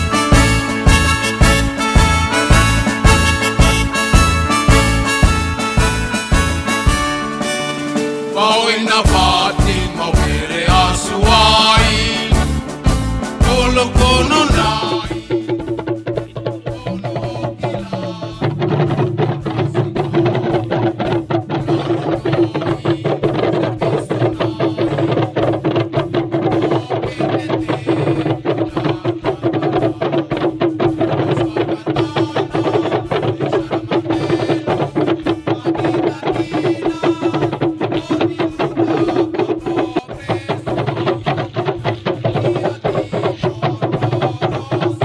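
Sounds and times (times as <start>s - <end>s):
hand drums beaten fast: 0.0s - 45.0s.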